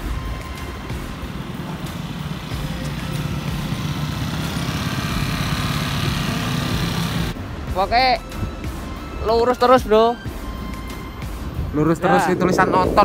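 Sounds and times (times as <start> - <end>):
scooter engines humming: 0.0 - 9.2
road noise: 0.0 - 13.0.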